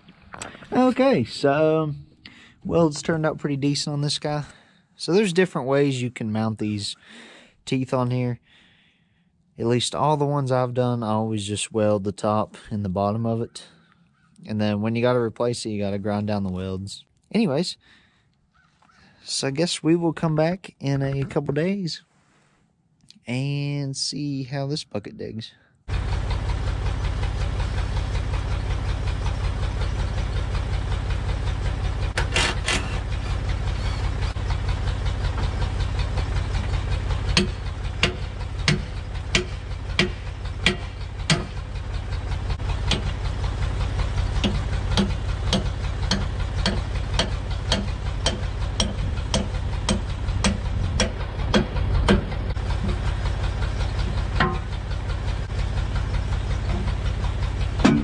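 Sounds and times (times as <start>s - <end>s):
backhoe engine running: 0.0s - 16.8s, 25.9s - 58.0s
sharp knocks: 37.3s - 41.6s, 42.8s - 43.2s, 44.4s - 53.1s, 54.0s - 54.8s, 57.8s - 58.0s.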